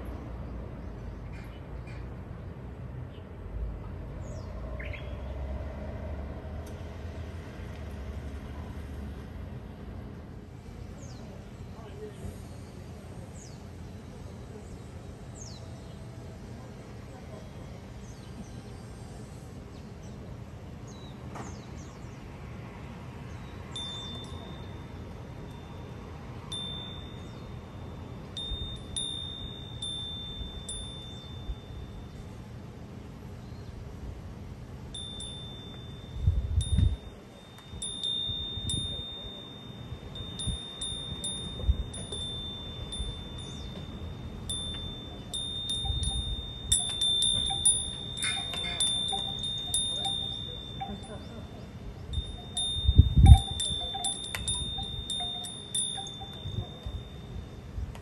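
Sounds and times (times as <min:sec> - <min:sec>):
wind chime ringing: 0:23.7 - 0:32.4, 0:34.9 - 0:58.0
wind rumble on microphone: 0:34.9 - 0:58.0.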